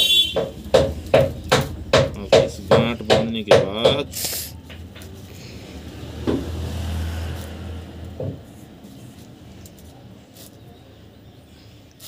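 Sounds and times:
passing vehicle rumble: 0:04.0 - 0:11.5.

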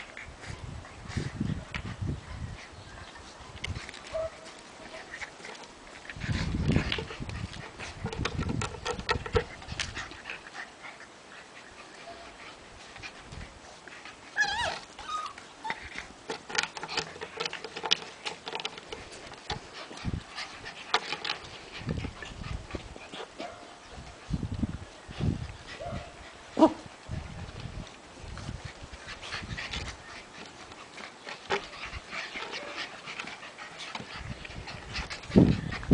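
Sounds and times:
scratching and tapping: 0:05.4 - 0:10.2, 0:16.2 - 0:22.2
puppy whimper: 0:14.3 - 0:15.9.

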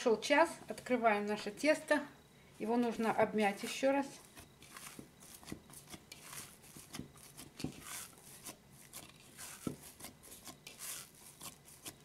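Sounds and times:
hands squishing dough: 0:03.6 - 0:12.0.

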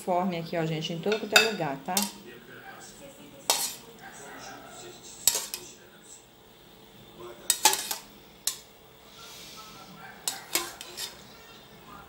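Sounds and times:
metal spoon clinking on bowl: 0:01.1 - 0:02.2, 0:03.5 - 0:03.8, 0:05.3 - 0:05.7, 0:07.5 - 0:08.6, 0:10.2 - 0:11.2.

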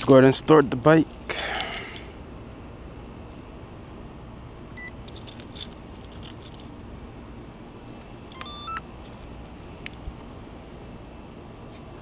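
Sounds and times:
steady outdoor rumble: 0:00.0 - 0:12.0
electronic beeps at different pitches: 0:08.4 - 0:08.8.

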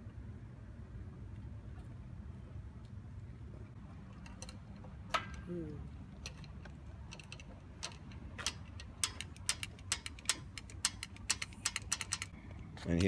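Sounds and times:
hand tools clicking on metal: 0:06.2 - 0:12.4.

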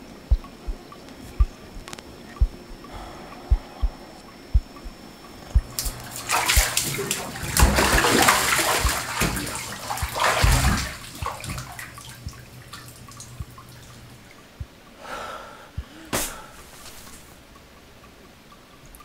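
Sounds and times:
low thuds: 0:00.0 - 0:02.9, 0:03.5 - 0:12.4
water splashing in a bathtub: 0:05.5 - 0:14.4.

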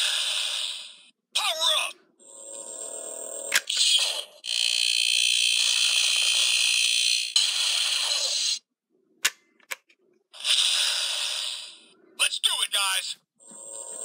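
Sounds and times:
high buzzing toy tone: 0:02.2 - 0:08.6.

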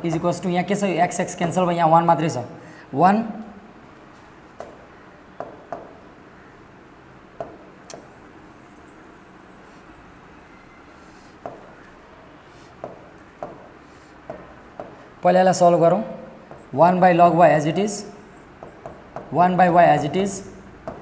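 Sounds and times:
pen tapping on glass: 0:05.4 - 0:06.0, 0:07.4 - 0:08.1, 0:11.4 - 0:11.8, 0:12.8 - 0:13.7, 0:14.3 - 0:15.0, 0:16.4 - 0:16.7, 0:18.6 - 0:19.4.

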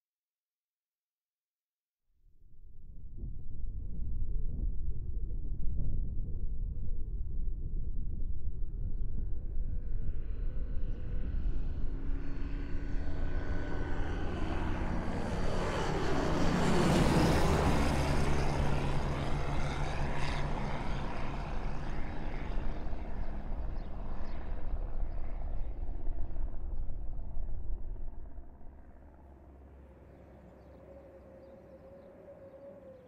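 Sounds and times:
propeller aircraft engine drone: 0:02.6 - 0:33.0.

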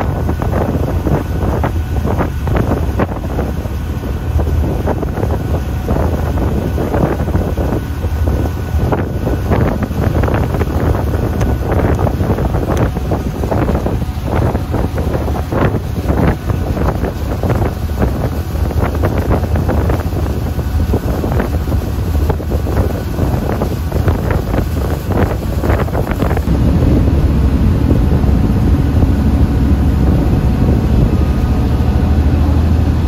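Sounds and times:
engine humming: 0:00.0 - 0:33.0
wind buffeting microphone: 0:00.0 - 0:33.0.

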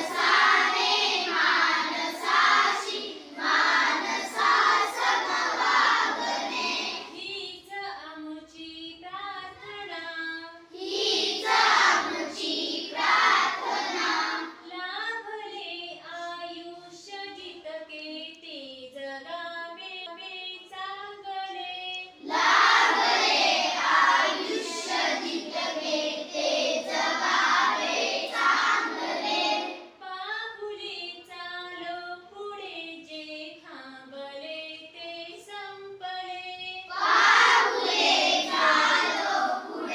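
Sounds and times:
children singing together: 0:00.0 - 0:07.3, 0:10.7 - 0:14.6, 0:22.1 - 0:30.0, 0:36.8 - 0:39.9.

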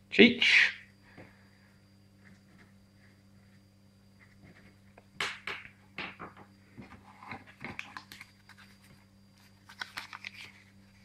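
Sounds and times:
clicks taps and rustles: 0:04.4 - 0:10.5.

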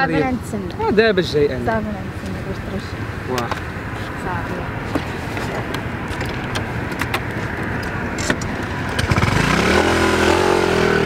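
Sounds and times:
motor scooter engine revving: 0:08.0 - 0:11.0.

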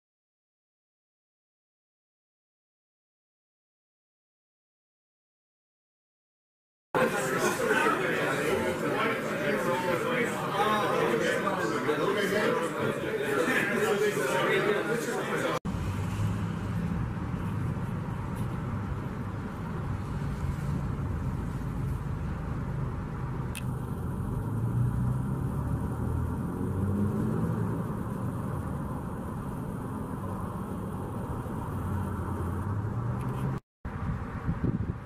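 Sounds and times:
road traffic rumble: 0:07.0 - 0:35.0.

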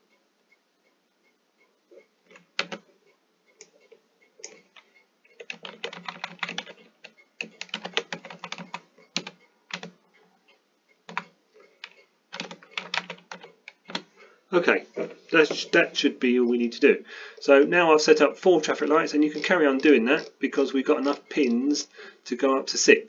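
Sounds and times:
typing on computer keyboard: 0:02.3 - 0:02.8, 0:04.4 - 0:10.0, 0:11.1 - 0:14.1.

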